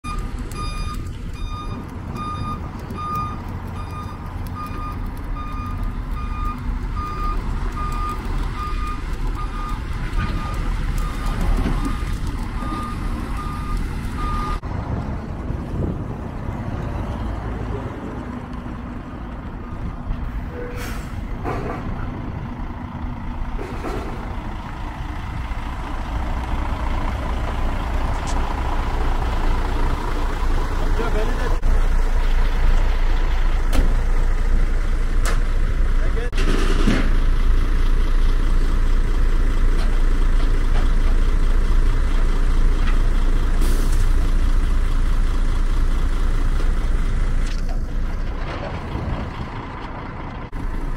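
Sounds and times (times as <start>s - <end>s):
reversing beeper: 0.0s - 14.6s
truck diesel engine running: 0.0s - 50.9s
air brake hisses: 20.6s - 21.2s, 43.6s - 44.0s.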